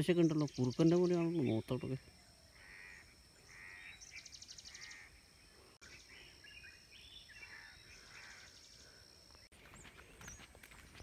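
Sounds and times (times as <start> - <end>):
faint crows cawing: 2.2 - 6.4, 7.3 - 9.2.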